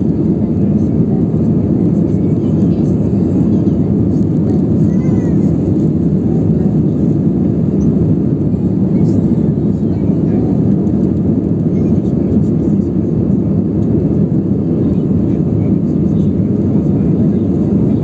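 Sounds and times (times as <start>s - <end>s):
jet engine cabin rumble: 0.0s - 18.0s.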